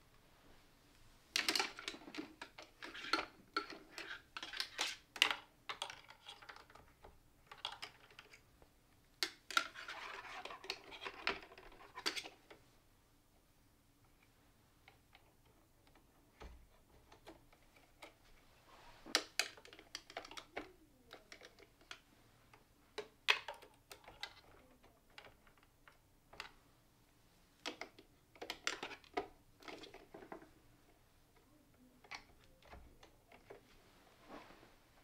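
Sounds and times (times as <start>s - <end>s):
plastic clattering: 1.3s - 8.4s, 27.6s - 30.6s
plastic tubes clicking and rustling: 1.3s - 12.6s, 14.0s - 26.6s, 27.6s - 33.8s.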